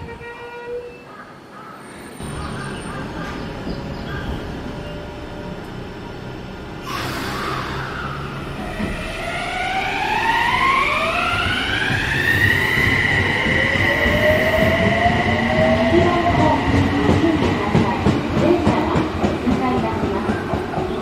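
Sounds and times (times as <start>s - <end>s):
train wheel rumble: 2.2s - 21.0s
electric train motors whining: 5.1s - 16.8s.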